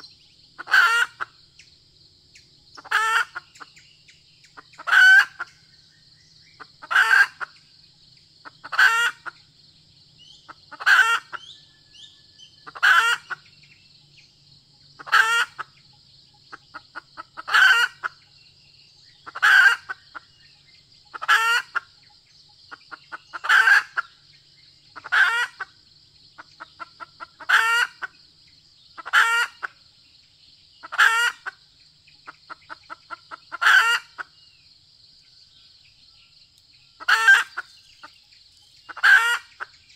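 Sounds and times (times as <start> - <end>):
hen calling: 0.0 - 1.3, 2.8 - 3.8, 4.4 - 5.6, 6.6 - 7.6, 8.4 - 9.4, 10.2 - 13.5, 15.0 - 15.8, 16.5 - 18.3, 19.2 - 20.4, 21.1 - 22.1, 22.7 - 24.2, 24.9 - 25.7, 26.4 - 28.1, 29.0 - 29.8, 30.8 - 31.6, 32.2 - 34.4, 37.0 - 38.2, 38.8 - 39.9
hen clucking softly: 0.0 - 1.4, 2.8 - 3.8, 4.4 - 5.6, 6.6 - 7.6, 8.4 - 9.4, 10.4 - 11.6, 12.6 - 13.5, 15.0 - 18.3, 19.2 - 20.4, 21.1 - 24.2, 24.8 - 28.2, 29.0 - 29.8, 30.8 - 31.6, 32.2 - 34.4, 37.0 - 38.2, 38.8 - 39.9.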